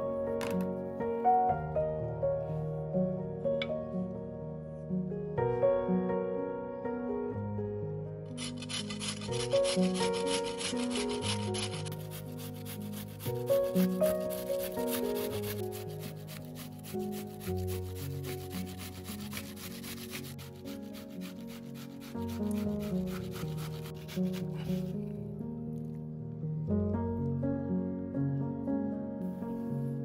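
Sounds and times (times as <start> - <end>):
soft background music: 0.0 - 30.0
onion rasping on a metal grater: 8.4 - 25.0.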